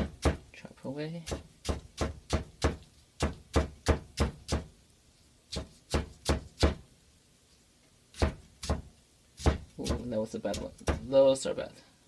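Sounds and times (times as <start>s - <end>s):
cleaver chopping on wooden board: 0.0s - 0.4s, 1.3s - 4.7s, 5.5s - 6.8s, 8.2s - 11.1s.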